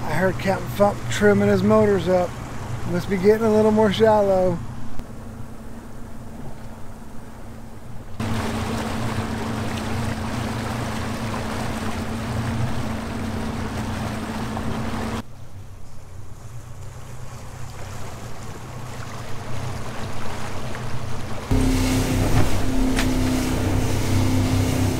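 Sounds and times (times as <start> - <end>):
outboard motor running: 0.0 - 24.9.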